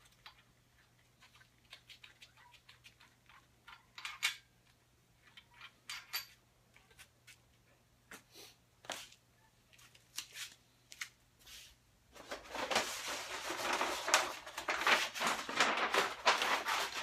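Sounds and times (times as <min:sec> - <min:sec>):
metal parts clicking and clinking: 0:03.0 - 0:06.4.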